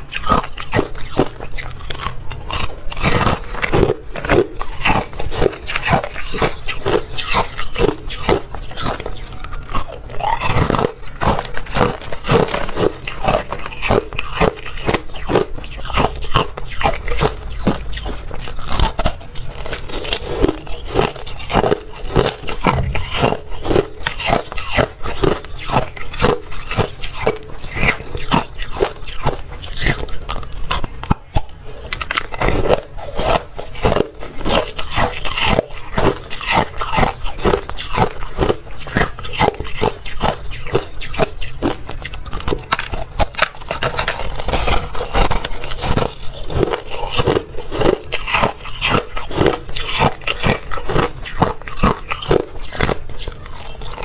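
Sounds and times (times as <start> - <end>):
ice being crunched: 42.4 - 54.0.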